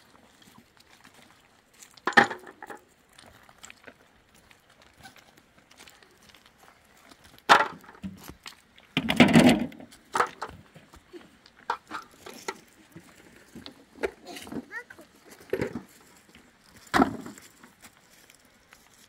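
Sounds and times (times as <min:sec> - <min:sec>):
stones knocking and clattering: 0:01.9 - 0:02.9, 0:07.1 - 0:14.7, 0:16.7 - 0:18.0.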